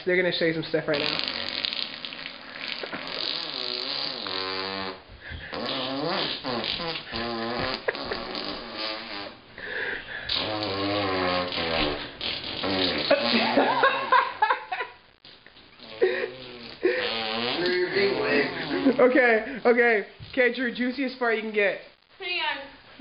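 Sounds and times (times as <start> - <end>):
boys making fart noises: 0.9 - 9.5, 10.1 - 19.8.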